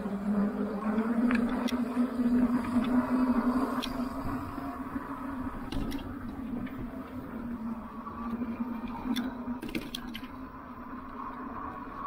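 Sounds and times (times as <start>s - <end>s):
wind: 0.0s - 12.0s.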